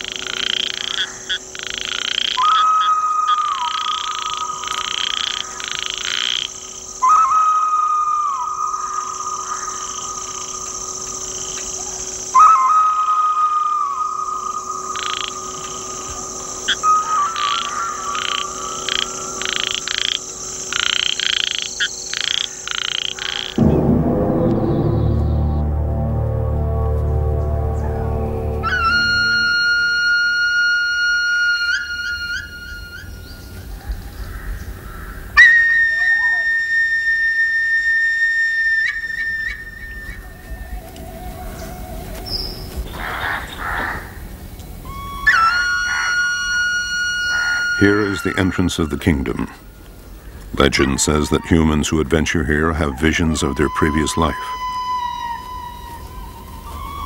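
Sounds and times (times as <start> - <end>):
frogs calling: 0.0 - 23.7, 27.6 - 57.0
steady high buzz: 0.0 - 33.7
flute playing: 2.3 - 4.9, 7.0 - 10.1, 12.3 - 19.7, 23.6 - 33.5, 35.4 - 42.6, 44.8 - 49.5, 52.8 - 57.0
whistle-like tone: 2.4 - 4.3, 7.0 - 9.0, 12.3 - 14.9, 16.7 - 18.2, 27.6 - 33.4, 35.4 - 40.3, 44.9 - 48.5
dark low music: 23.5 - 30.8.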